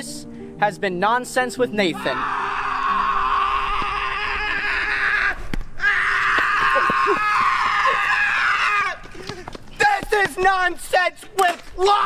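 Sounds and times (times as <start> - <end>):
loud screaming: 2.0 - 9.0.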